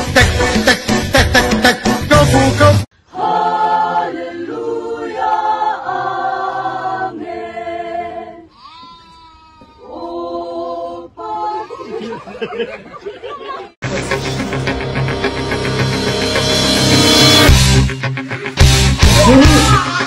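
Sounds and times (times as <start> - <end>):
choir singing in harmony: 3.0 - 8.5, 9.9 - 11.7, 13.9 - 17.8
goat bleating: 8.5 - 9.9.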